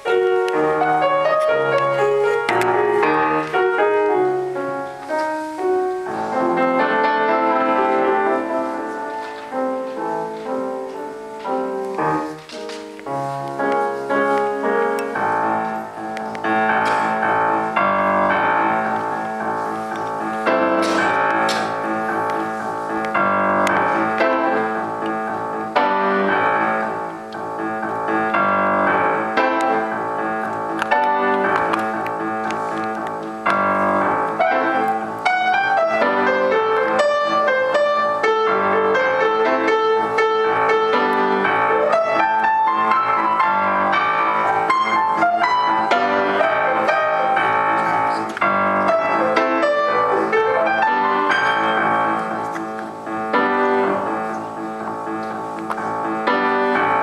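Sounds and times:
grand piano playing classical piece: 0.0 - 57.0.

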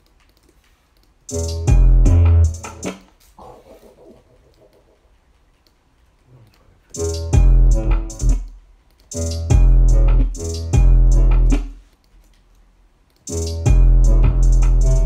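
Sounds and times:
trap beat with deep bass: 1.3 - 3.0, 6.9 - 8.5, 9.1 - 11.8, 13.3 - 15.0.

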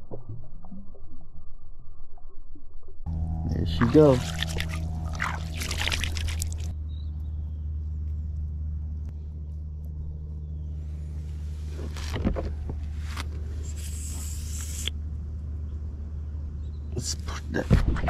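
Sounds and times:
steady low hum: 2.9 - 18.0
water splashing and swirling: 3.8 - 6.7.

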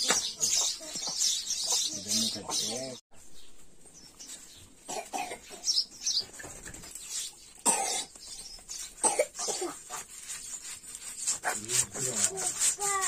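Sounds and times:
person coughing: 4.9 - 5.6, 7.6 - 8.1, 9.0 - 9.8.

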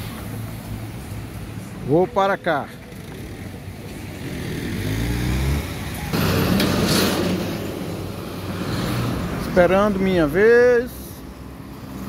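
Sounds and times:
car engine revving pulling away: 4.2 - 9.6.

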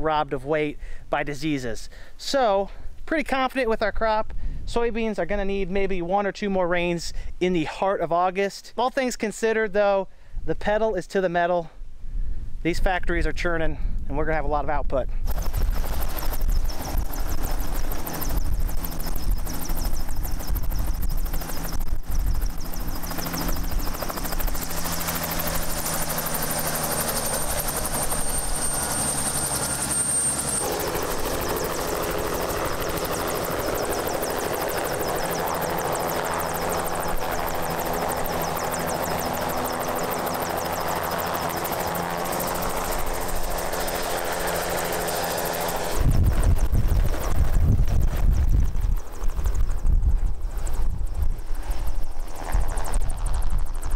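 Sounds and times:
helicopter rotor: 15.2 - 53.9
high turbine whine: 15.2 - 53.9.

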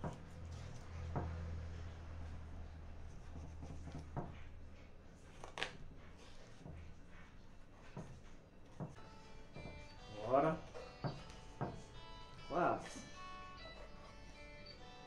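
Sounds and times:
knife tapping cutting board: 11.0 - 11.9.

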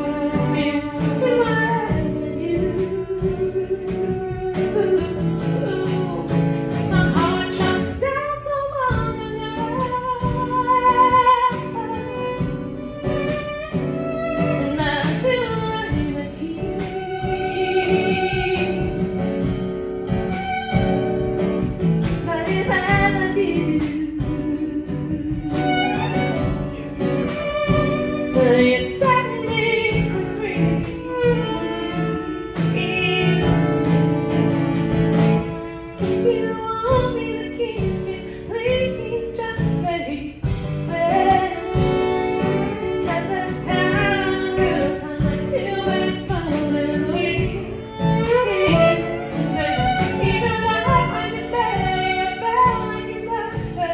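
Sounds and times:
fiddle playing: 0.0 - 8.0, 9.2 - 39.5, 40.7 - 53.9
woman singing: 0.0 - 34.5, 35.6 - 53.9
drum kit: 0.0 - 53.9
strummed acoustic guitar: 0.0 - 53.9.

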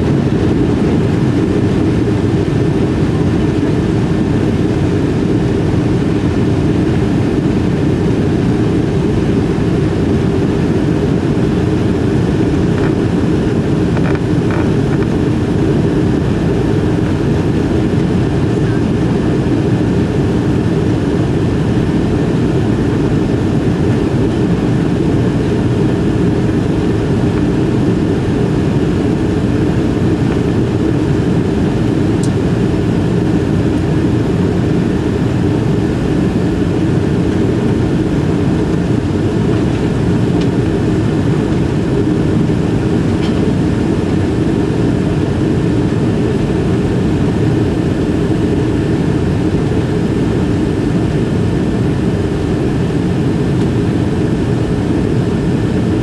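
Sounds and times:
jet engine cabin rumble: 0.0 - 56.0.

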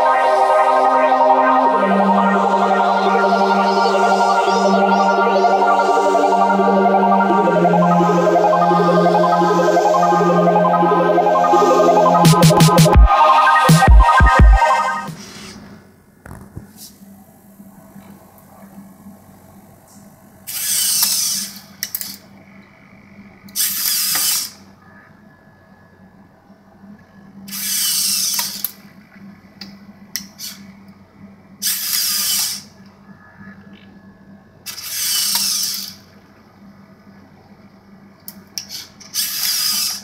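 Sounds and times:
servo motors whirring: 20.5 - 21.6, 34.7 - 36.0.

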